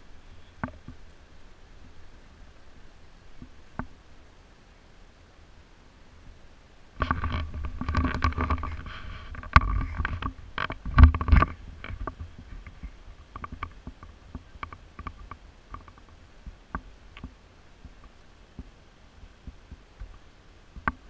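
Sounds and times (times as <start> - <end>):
camera handling rumble: 7.0 - 16.1.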